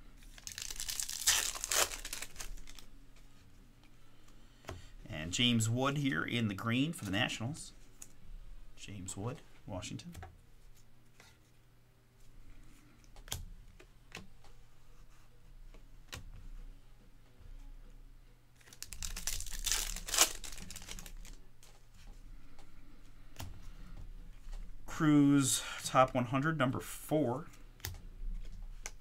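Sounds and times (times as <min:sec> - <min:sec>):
wrapper tearing open: 0:00.2 - 0:02.9, 0:18.6 - 0:21.4.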